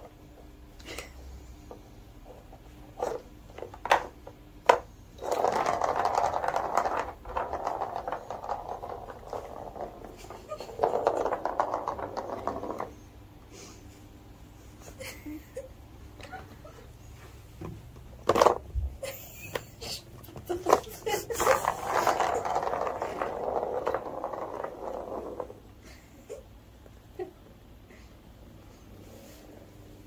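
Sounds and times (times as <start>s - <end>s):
ball rattling on plastic track: 3.0s - 13.1s, 18.2s - 18.9s, 20.5s - 25.8s
plastic ball knocking: 3.6s - 13.0s, 20.7s - 25.7s.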